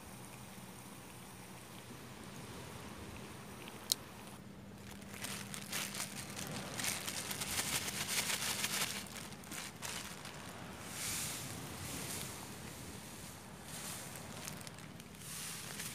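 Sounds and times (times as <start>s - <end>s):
plastic bag crinkling: 4.7s - 10.7s, 13.8s - 15.9s.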